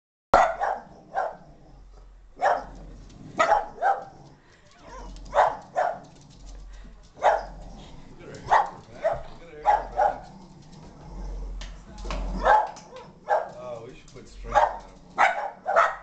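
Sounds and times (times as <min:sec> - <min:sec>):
dog barking: 0:00.3 - 0:01.6, 0:02.4 - 0:02.8, 0:03.4 - 0:04.2, 0:04.8 - 0:06.1, 0:07.2 - 0:07.6, 0:08.4 - 0:10.4, 0:12.3 - 0:13.6, 0:14.5 - 0:16.0.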